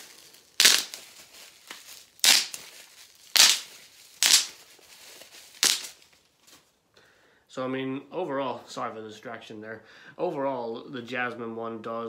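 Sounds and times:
bubble wrap pops: 0.0s - 6.6s
bubble wrap being twisted: 0.0s - 6.7s.

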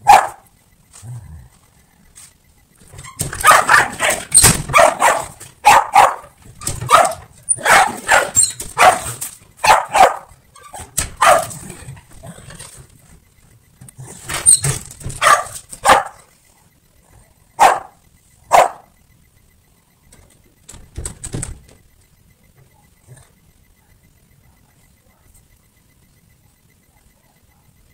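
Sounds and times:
dog barking: 0.0s - 0.5s, 3.3s - 11.7s, 15.1s - 16.3s, 17.6s - 19.0s.

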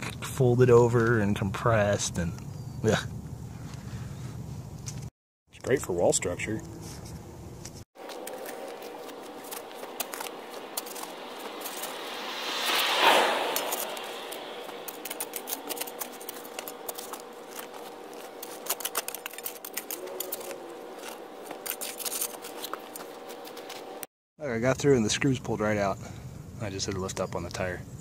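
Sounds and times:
shovel scraping gravelly dirt: 8.0s - 24.0s.

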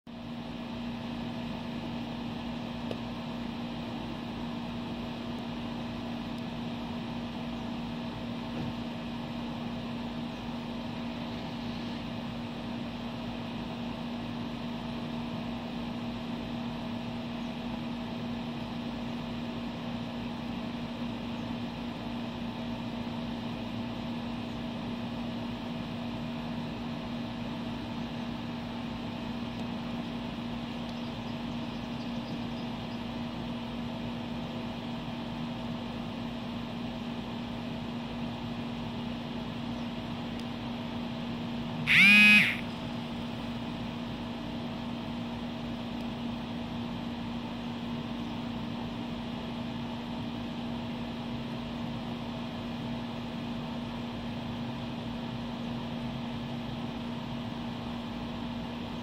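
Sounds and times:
mechanical hum: 0.1s - 59.0s.

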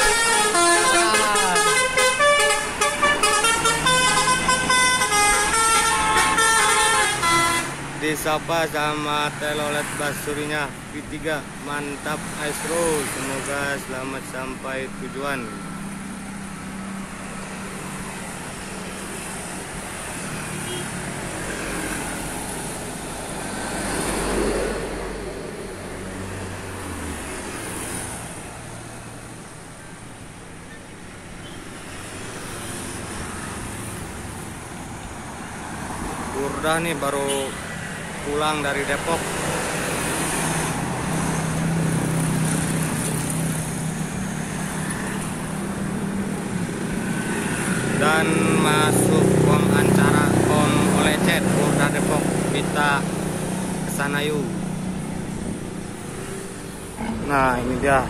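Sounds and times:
truck passing: 0.0s - 8.7s, 15.6s - 29.8s, 31.8s - 58.0s
traffic noise: 0.0s - 58.0s
motorcycles approaching: 31.9s - 58.0s.

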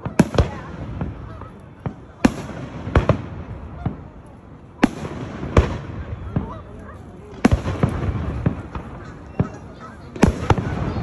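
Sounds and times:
faint firework pops: 7.3s - 11.0s.

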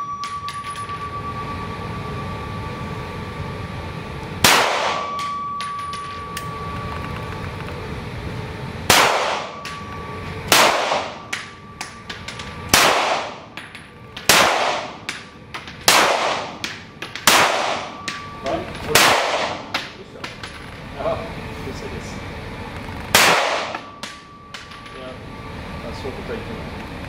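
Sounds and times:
pistol shots echoing indoors: 4.4s - 5.3s, 8.9s - 9.7s, 10.5s - 11.5s, 12.7s - 13.4s, 14.2s - 15.2s, 15.8s - 18.2s, 18.9s - 19.9s, 23.2s - 24.2s.

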